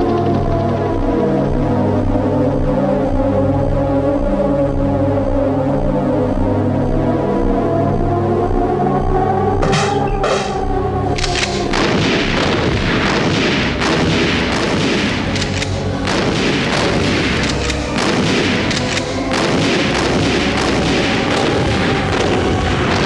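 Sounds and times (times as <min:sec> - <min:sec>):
music: 0:00.0 - 0:23.0
heavy gunfire and explosions: 0:09.6 - 0:23.0.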